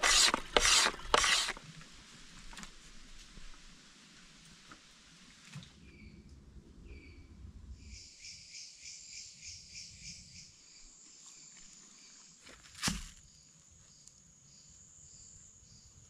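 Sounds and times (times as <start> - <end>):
insects chirping and trilling: 7.9 - 16.0.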